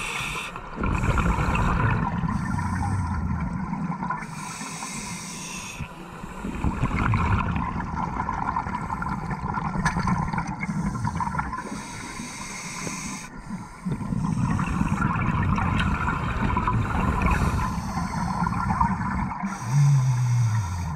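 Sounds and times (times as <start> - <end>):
diver breathing through regulator: 0.0 - 6.8, 10.6 - 14.9, 17.3 - 20.9
underwater bubbles rumbling: 0.6 - 4.4, 6.4 - 11.7, 13.8 - 20.9.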